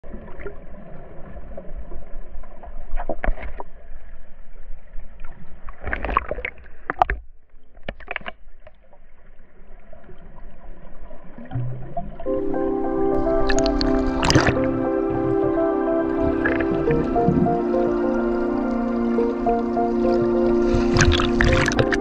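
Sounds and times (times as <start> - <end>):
bubbling and crackling: 5.2 - 9.1, 13.2 - 22.0
muffled underwater rush: 9.3 - 22.0.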